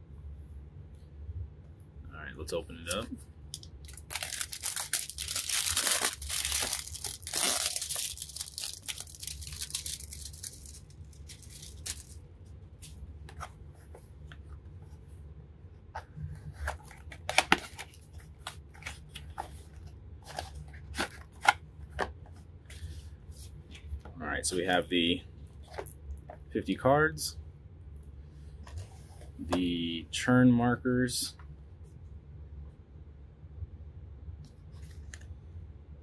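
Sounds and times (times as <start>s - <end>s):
plastic wrapping tearing and crinkling: 2.8s - 12.2s.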